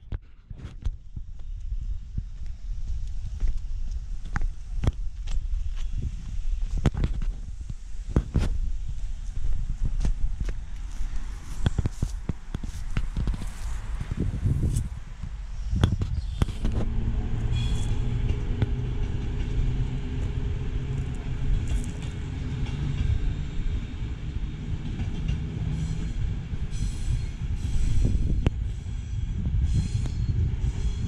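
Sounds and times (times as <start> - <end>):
train wheels rumbling on rails: 0.0 - 31.0
high-pitched train wheel squeal: 15.6 - 23.7, 25.7 - 31.0.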